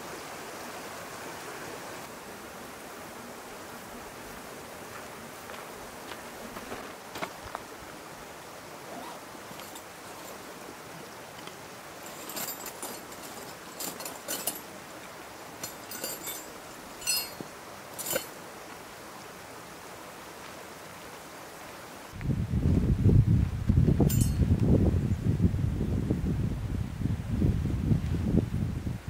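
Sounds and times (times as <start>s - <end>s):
steady outdoor hiss: 0.0s - 29.0s
bag rummaging clicks and rattles: 8.9s - 10.5s, 11.4s - 14.8s, 15.5s - 18.4s, 24.1s - 24.4s.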